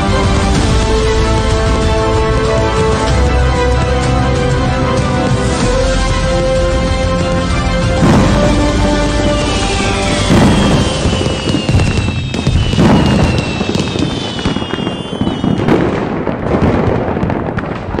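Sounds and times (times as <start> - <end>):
music: 0.0 - 13.9
fireworks crackling: 0.0 - 18.0
fireworks booming: 7.2 - 18.0
fireworks whistling: 7.9 - 18.0.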